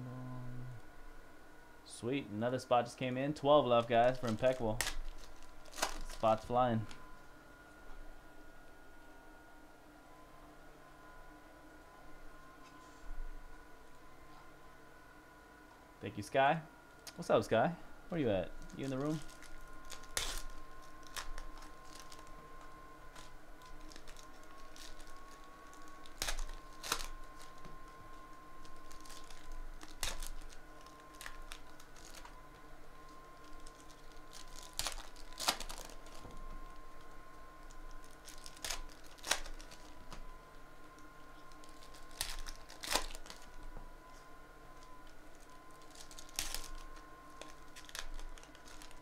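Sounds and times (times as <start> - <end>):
faint steady tone: 0.0 - 2.5
foil packs crinkling and tearing: 3.7 - 7.0, 18.1 - 32.4, 33.0 - 40.3, 41.0 - 43.7, 44.8 - 49.0.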